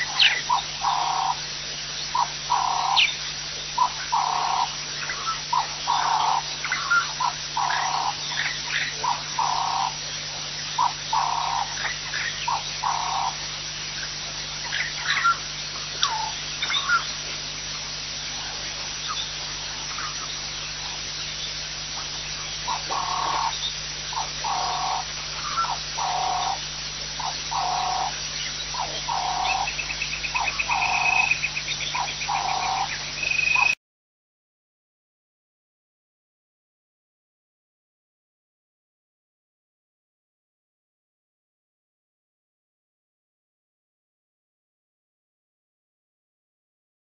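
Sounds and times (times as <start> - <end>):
frog calling: 0.0 - 33.8
bird chirps: 2.1 - 17.5, 18.4 - 33.8.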